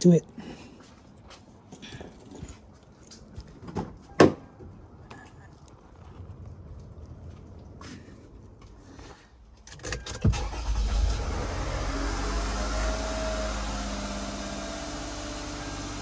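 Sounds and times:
car engine starting and idling: 9.5s - 16.0s.

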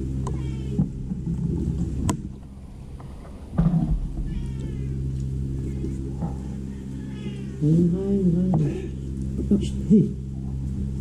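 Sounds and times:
steady low hum: 0.0s - 11.0s
cat meowing: 0.3s - 0.8s, 4.2s - 5.0s, 7.0s - 7.7s.

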